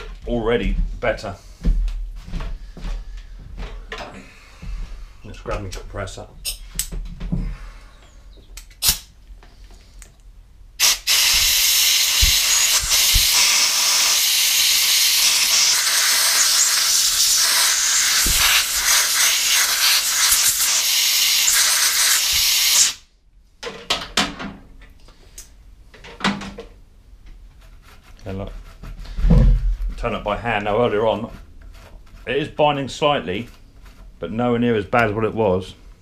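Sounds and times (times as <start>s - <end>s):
compressed air blow gun hissing: 10.8s - 23.1s.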